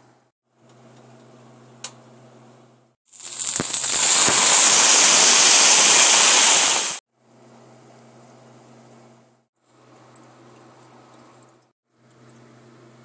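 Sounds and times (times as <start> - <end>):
onions sizzling in hot oil: 3.1 - 7.0.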